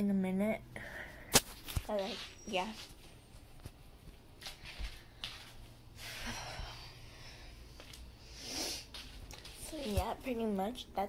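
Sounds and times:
person breathing and sighing: 5.9 - 9.0.

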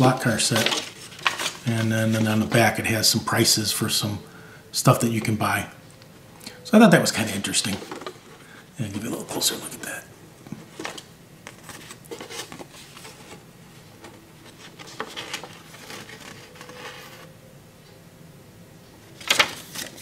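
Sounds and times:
paper leaflet rustling: 0.0 - 3.2, 6.9 - 17.3, 19.2 - 20.0.

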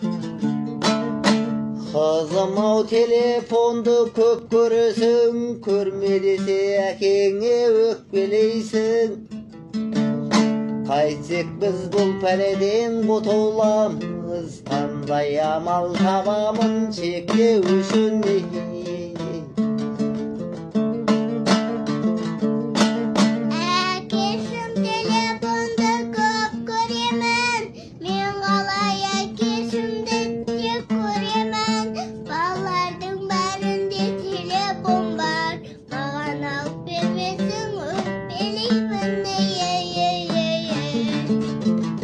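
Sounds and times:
strummed lute: 0.0 - 42.0
girl singing: 23.5 - 41.4.

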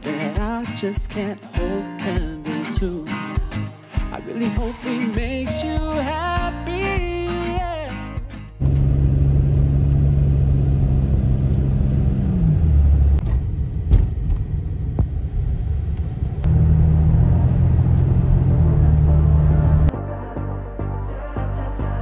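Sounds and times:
vehicle engine rumbling: 8.6 - 19.9.

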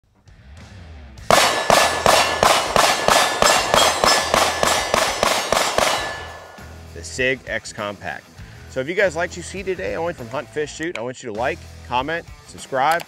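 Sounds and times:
loud metallic clangs: 1.3 - 6.9.

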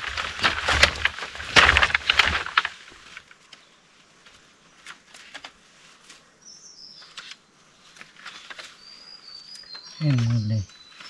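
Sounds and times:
light clicks and rustles: 0.0 - 6.3, 7.0 - 8.8
bird chirping: 6.4 - 7.5, 8.2 - 11.0.

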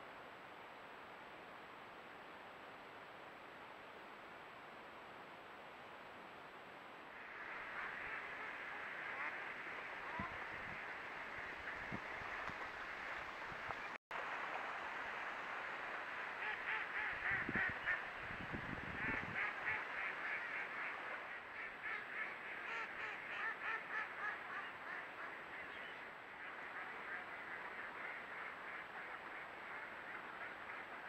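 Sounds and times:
ducks quacking: 7.4 - 12.4, 16.4 - 18.1, 18.9 - 25.8.

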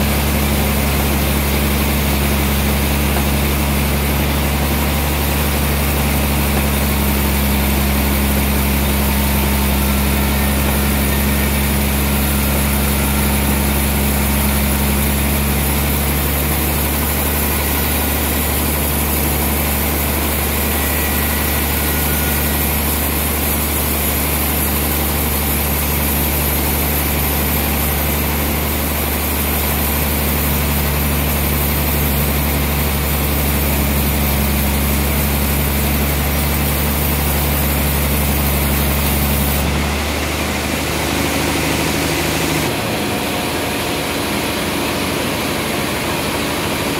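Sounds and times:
band saw humming: 0.0 - 46.9.

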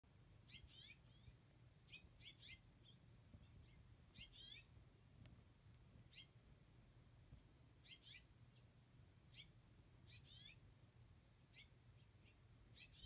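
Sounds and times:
finches chirping: 0.4 - 5.1, 6.1 - 6.4, 7.8 - 8.7, 9.3 - 10.6, 11.5 - 13.0.

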